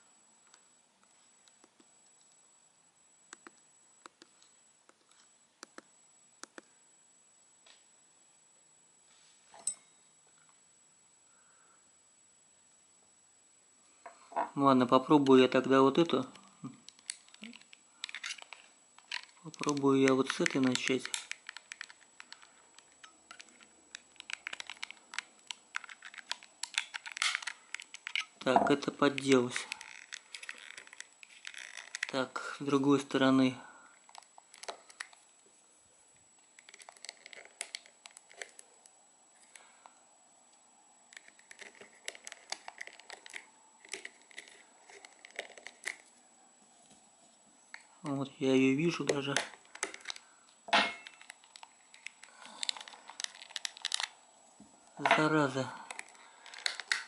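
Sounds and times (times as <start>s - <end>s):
small plastic clicks and scratches: 16.9s - 28.3s, 29.1s - 32.2s, 36.6s - 38.6s, 41.1s - 46.0s, 51.1s - 54.2s, 55.9s - 57.0s.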